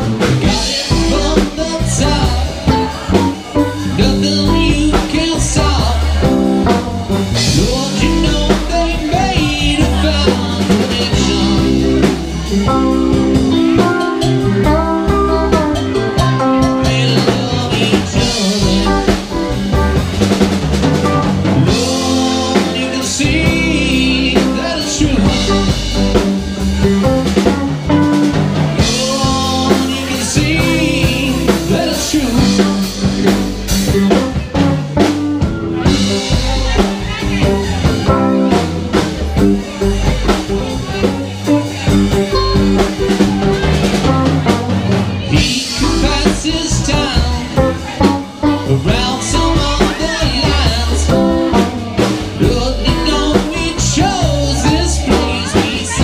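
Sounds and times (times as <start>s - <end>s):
bass guitar: 0.0s - 56.0s
drum kit: 0.0s - 56.0s
electric guitars: 0.0s - 56.0s
man singing: 0.0s - 56.0s.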